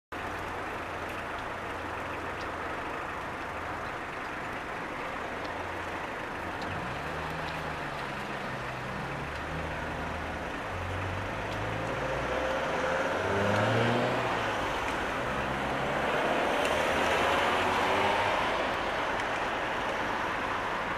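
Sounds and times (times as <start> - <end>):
street traffic rumble: 0.1 - 20.9
vehicle engine accelerating: 4.4 - 20.6.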